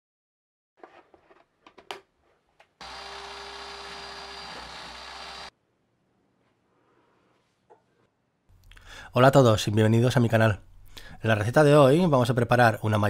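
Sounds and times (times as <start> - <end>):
food processor motor running: 2.8 - 5.5.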